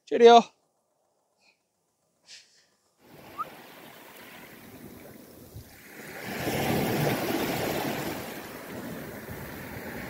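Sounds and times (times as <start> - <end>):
waves washing at shore: 3.0 - 10.0
wind noise on microphone: 3.1 - 10.0.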